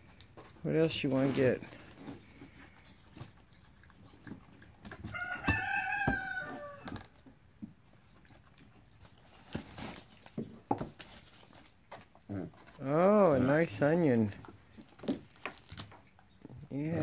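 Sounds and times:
monkey rustling in cardboard box: 0.8s - 3.4s, 9.0s - 16.0s
rooster crowing: 5.1s - 7.0s.

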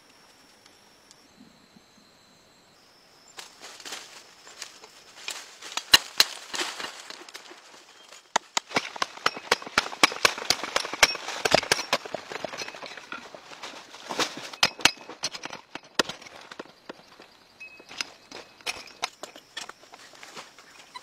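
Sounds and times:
tool chipping into hard earth: 5.7s - 6.9s, 8.3s - 13.3s, 14.1s - 17.0s.

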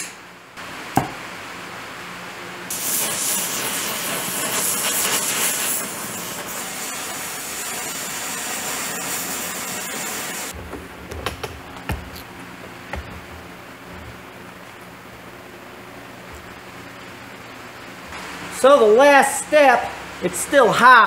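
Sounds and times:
arc welder crackling hiss: 2.7s - 10.6s.

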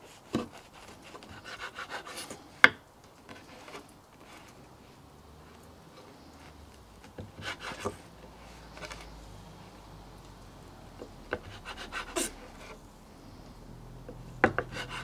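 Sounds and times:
knife sawing through bread: 0.3s - 2.4s, 7.4s - 8.0s, 11.3s - 12.8s, 14.6s - 15.0s
knife tapping wooden board: 14.1s - 14.8s.

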